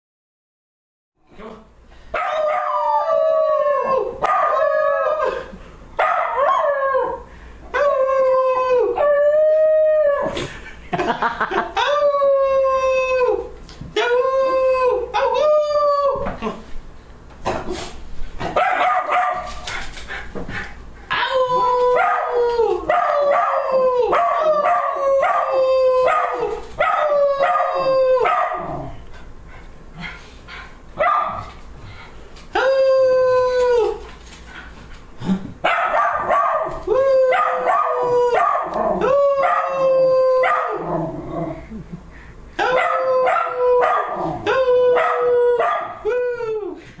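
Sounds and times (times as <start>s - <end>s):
man howling: 2.3s - 5.5s, 6.6s - 10.4s, 11.8s - 16.4s, 21.1s - 28.9s, 32.5s - 34.1s, 36.8s - 41.6s, 42.6s - 46.8s
small dog howling: 21.1s - 28.9s, 36.3s - 41.2s, 42.6s - 46.8s.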